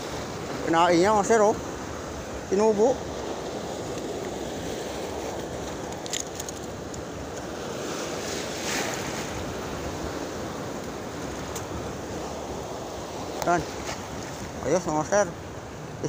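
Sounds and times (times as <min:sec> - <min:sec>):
choppy sea waves: 0:00.0 - 0:16.0.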